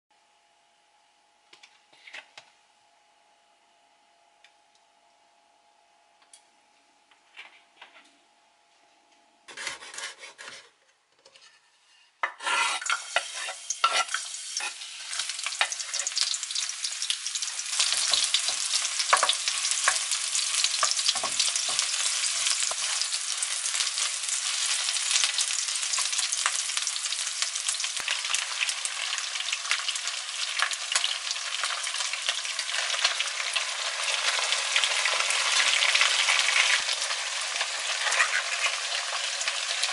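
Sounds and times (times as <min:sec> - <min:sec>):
garlic and onion sizzling in oil: 0:12.2 - 0:39.9.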